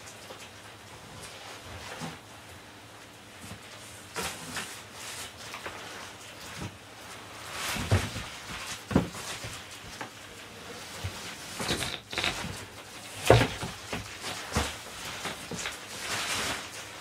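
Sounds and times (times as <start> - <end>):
cardboard flaps scraping and rustling: 3.5 - 17.0
dull knocks on cardboard boxes: 7.8 - 10.1, 13.2 - 15.7.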